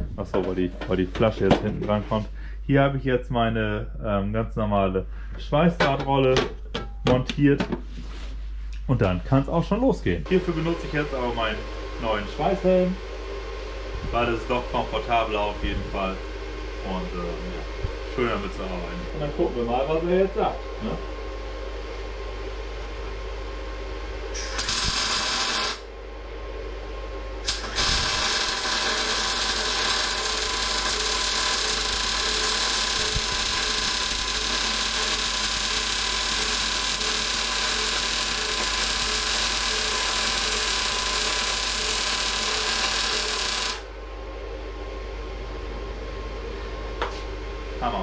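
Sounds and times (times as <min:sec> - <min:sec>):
welding arc: 0:24.3 - 0:25.9, 0:27.4 - 0:43.9.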